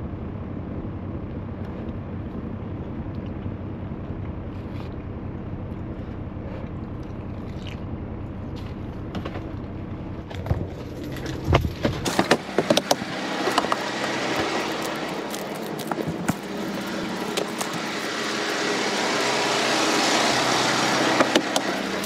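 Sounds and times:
passing vehicles: 0.0s - 22.0s
truck engine humming: 0.0s - 22.0s
sharp clicks and knocks: 10.3s - 13.8s.

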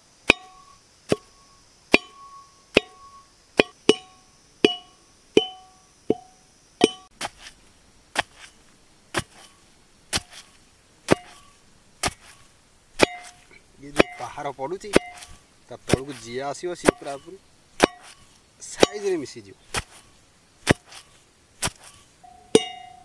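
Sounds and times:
iron pestle pounding in mortar: 3.6s - 7.1s, 13.0s - 13.4s, 14.0s - 14.3s, 14.9s - 16.2s, 16.8s - 17.2s, 17.8s - 18.2s, 18.8s - 19.0s.

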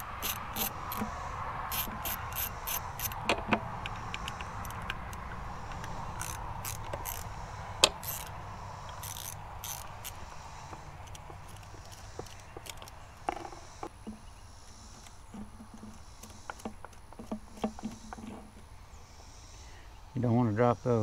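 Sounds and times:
socket ratchet clicking: 0.0s - 13.6s.

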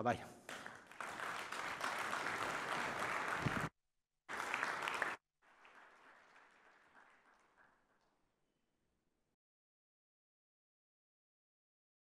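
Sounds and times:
audience applause: 0.5s - 3.7s, 4.3s - 8.1s.

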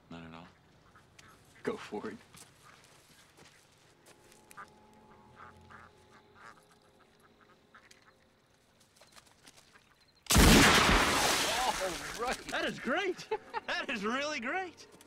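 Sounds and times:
ducks quacking: 0.2s - 3.1s, 4.5s - 8.3s, 11.6s - 14.3s
loud gunshot: 10.3s - 11.8s.

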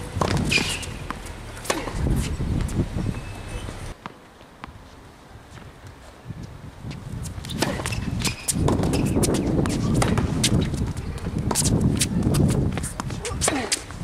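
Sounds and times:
racket striking tennis ball: 0.2s - 2.4s, 7.5s - 10.7s
shoe scuffs and footsteps on court: 0.2s - 14.0s.

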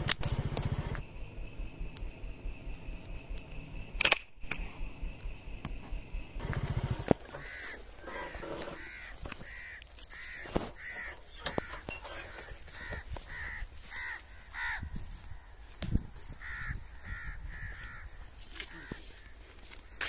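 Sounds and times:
crows cawing: 7.2s - 20.0s.

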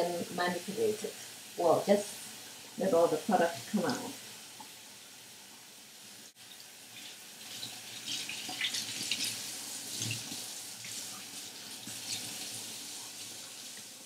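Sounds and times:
faucet running into sink: 7.0s - 13.9s.

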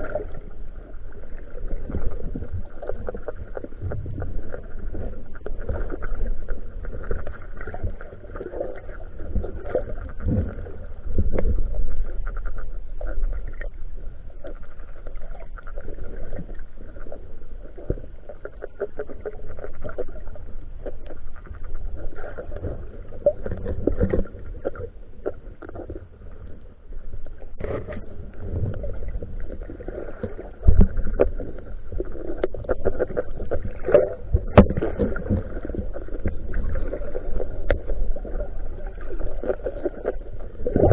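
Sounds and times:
moving water underwater: 0.0s - 40.9s.

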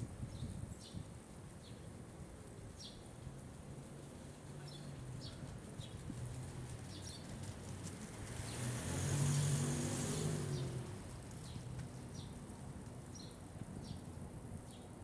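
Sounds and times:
vehicle passing by: 4.4s - 13.3s.

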